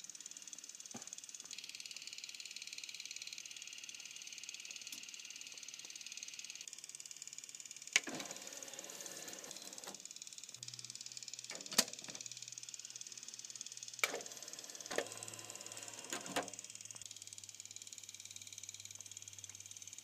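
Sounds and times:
cd player whirring: 7.8 - 17.8.

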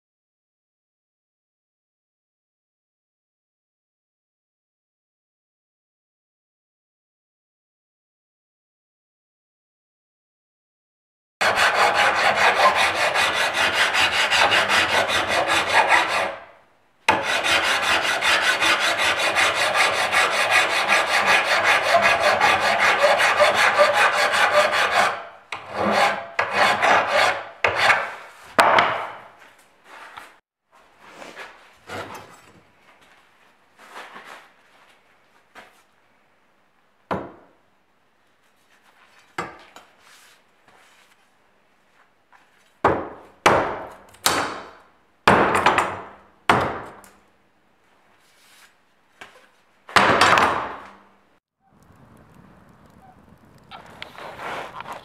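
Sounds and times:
file rasping on steel blade: 11.4 - 16.5, 17.1 - 28.2
knocks and scrapes of blade: 17.1 - 29.3, 31.1 - 32.6.

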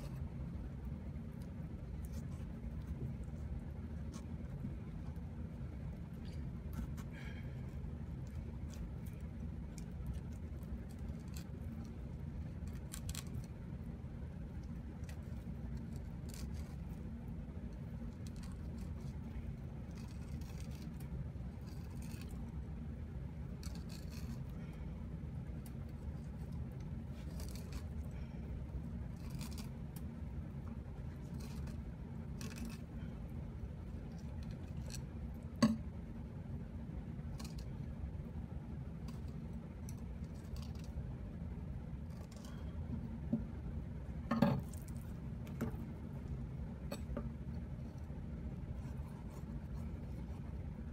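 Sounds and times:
low background hum: 0.0 - 50.9.

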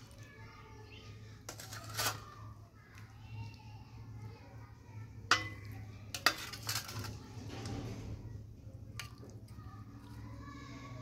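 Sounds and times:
spoon scraping rattle: 1.5 - 2.4, 5.3 - 7.3
metal spoon clinking on dish: 5.3 - 7.1.

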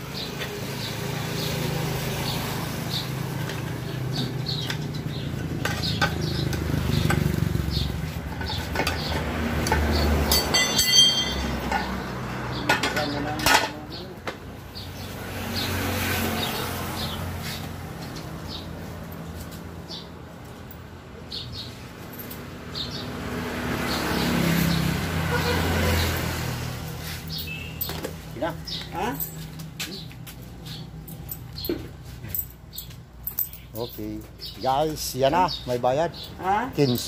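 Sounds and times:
metal tools clinking: 4.2 - 14.0, 27.3 - 29.8, 31.0 - 34.5
metal ringing: 10.3 - 12.0.

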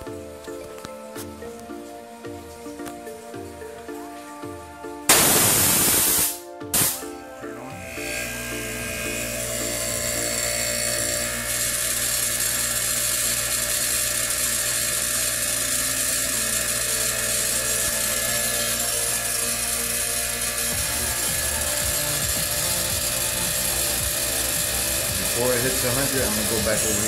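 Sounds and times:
air compressor humming and hissing: 0.0 - 27.0.

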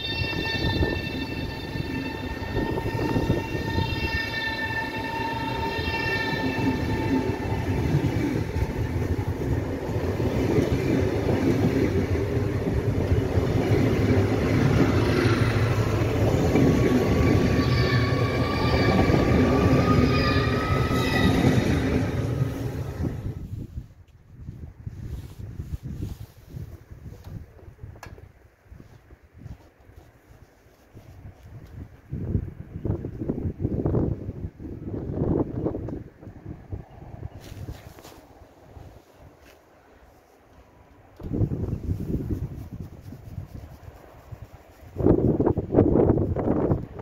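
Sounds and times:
electric train whine: 0.0 - 23.5
train wheels rumbling on rails: 0.0 - 23.6.

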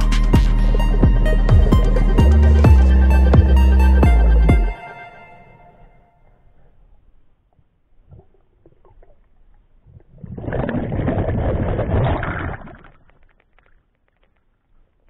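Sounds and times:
bubbling churning water: 9.9 - 13.1.

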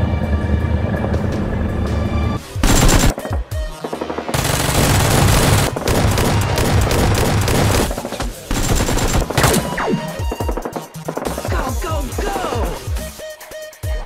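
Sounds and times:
background music: 0.0 - 14.0
machine-gun gunfire bursts: 2.6 - 11.5.

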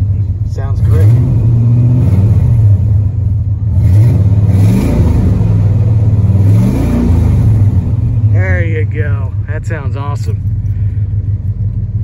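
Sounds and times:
truck engine revving and idling: 0.0 - 12.0.

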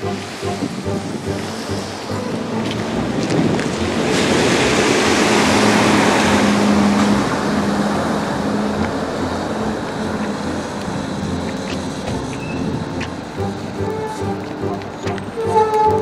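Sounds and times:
vehicle passing on wet street: 0.0 - 16.0.

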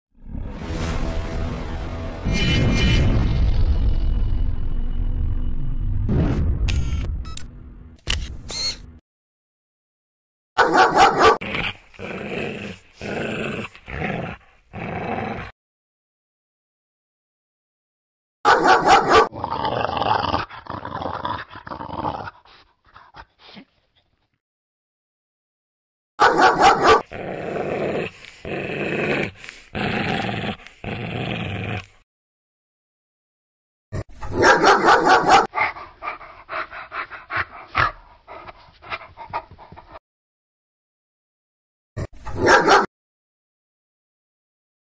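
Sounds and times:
sharp dog sound: 10.6 - 11.5, 18.5 - 19.3, 26.2 - 27.1, 34.2 - 35.6, 42.3 - 42.9
dog growling: 11.4 - 15.5, 19.2 - 22.6, 26.9 - 32.0
dog panting: 35.6 - 40.0.

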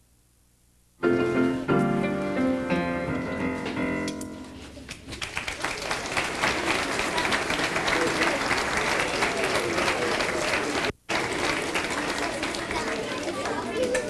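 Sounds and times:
piano chords: 1.0 - 4.9
audience applauding: 5.1 - 14.0.

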